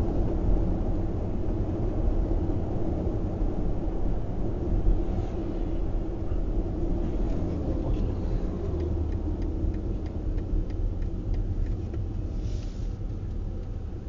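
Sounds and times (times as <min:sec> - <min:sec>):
car tyres and engine rumble: 0:00.0 - 0:14.0
faint ticks: 0:08.6 - 0:13.8.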